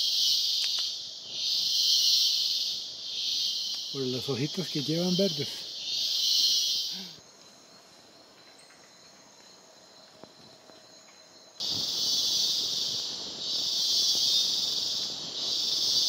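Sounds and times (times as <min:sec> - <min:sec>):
insects buzzing loudly: 0:00.0 - 0:16.0.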